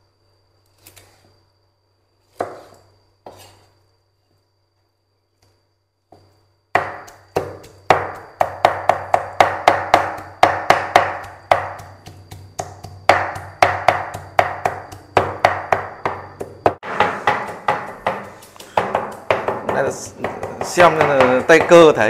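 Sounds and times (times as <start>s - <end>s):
cleaver chopping on wooden board: 6.8s - 22.0s.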